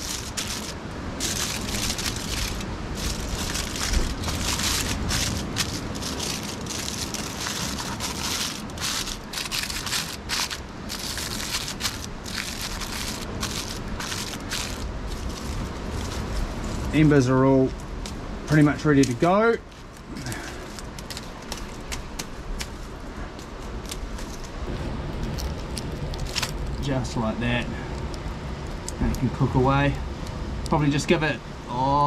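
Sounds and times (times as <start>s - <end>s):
tin foil crinkling: 0.0s - 17.0s, 19.0s - 26.8s.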